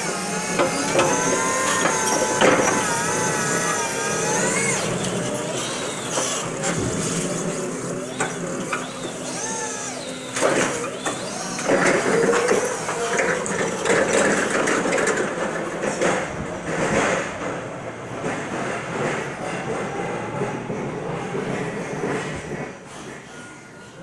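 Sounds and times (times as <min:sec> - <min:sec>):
electric drive whine: 0:00.0 - 0:14.7
truck mast and wheels rattling: 0:00.0 - 0:19.5.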